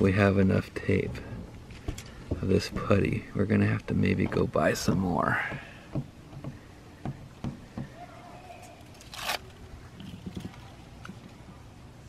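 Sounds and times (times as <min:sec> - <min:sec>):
light taps on metal roof: 0:00.8 - 0:08.0
tape ripping from roll: 0:08.8 - 0:10.6.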